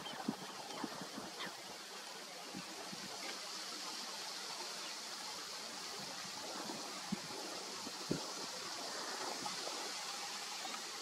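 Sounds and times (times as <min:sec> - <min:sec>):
wind buffeting microphone: 0:00.0 - 0:03.2, 0:05.8 - 0:11.0.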